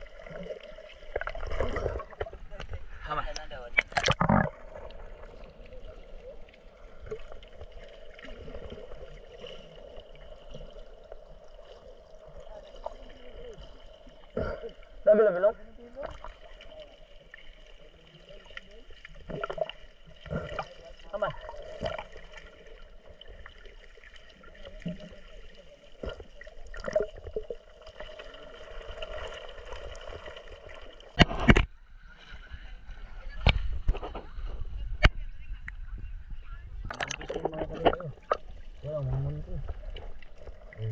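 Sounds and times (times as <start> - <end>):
muffled water sloshing underwater: 0.0 - 40.9
underwater clicks and knocks: 1.1 - 5.0, 31.1 - 31.8, 36.8 - 38.5
loud water splash: 3.8 - 5.2.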